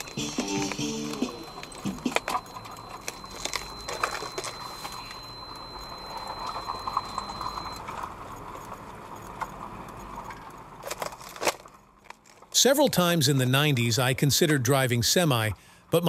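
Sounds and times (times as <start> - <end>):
faint high tone: 0.0 - 7.8.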